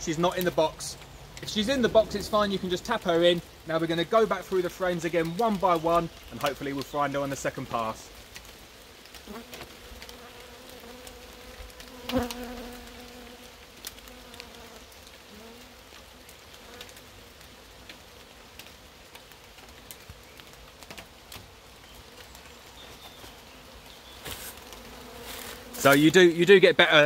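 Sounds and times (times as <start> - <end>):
bees buzzing: 9.0 - 17.4, 23.6 - 26.6.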